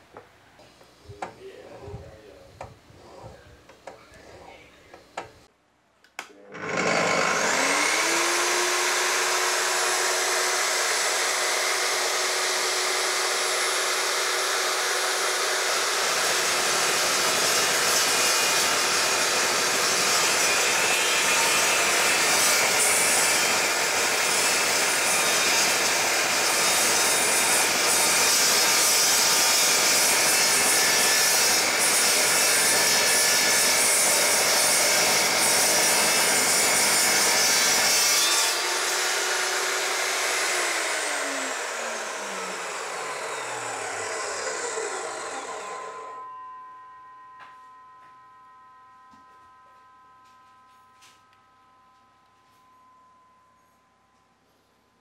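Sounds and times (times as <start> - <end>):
chop saw motor running: 6.4 - 46.3
saw blade cutting steel: 6.6 - 48.0.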